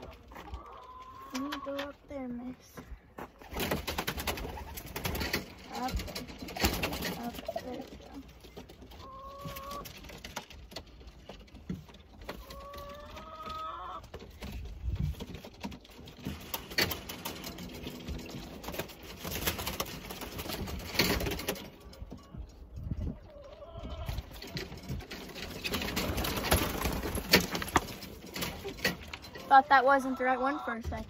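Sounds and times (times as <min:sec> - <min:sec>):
sharp knocks and clatter: 0:03.6 - 0:12.6, 0:14.0 - 0:22.4, 0:24.2 - 0:29.5.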